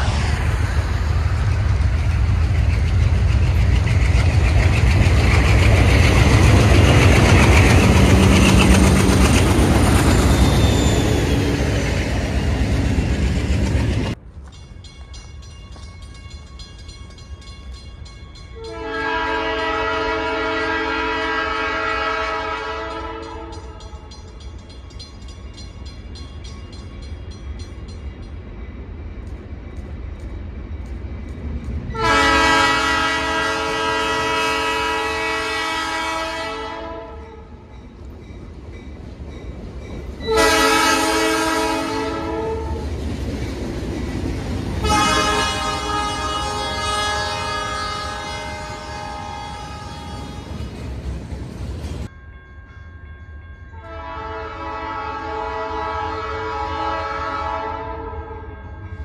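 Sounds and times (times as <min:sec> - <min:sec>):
diesel locomotive engine rumble: 0:00.0 - 0:52.4
locomotive horn: 0:18.6 - 0:23.8, 0:31.9 - 0:37.6, 0:40.2 - 0:42.9, 0:44.8 - 0:50.6, 0:53.8 - 0:58.5.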